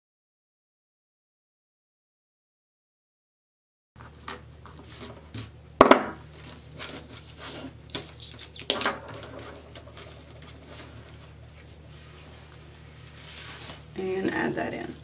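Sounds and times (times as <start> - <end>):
mesh rustling and crinkling: 6.3 - 14.9.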